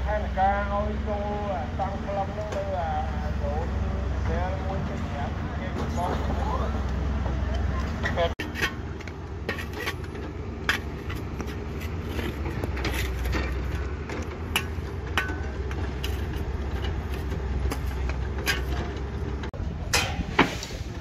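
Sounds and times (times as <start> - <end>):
heavy machinery rumbling: 0.0 - 21.0
steel shovels scraping sand: 9.4 - 15.0, 19.9 - 21.0.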